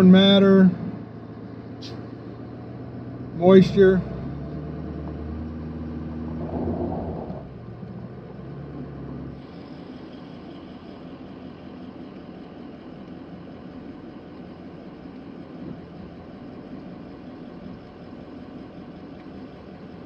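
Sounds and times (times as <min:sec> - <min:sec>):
truck engine hum from cab: 0:00.0 - 0:20.0.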